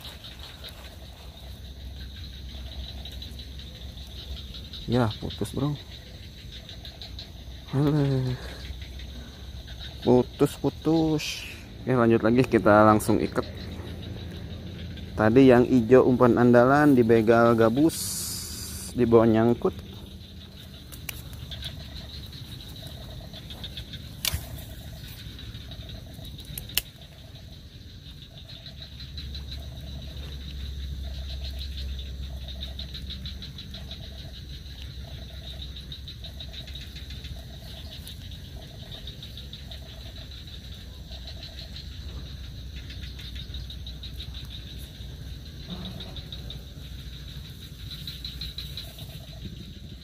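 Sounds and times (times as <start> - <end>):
frog croaking: 0.0 - 50.0
insect chorus: 0.0 - 50.0
sharp clicks: 26.3 - 27.0.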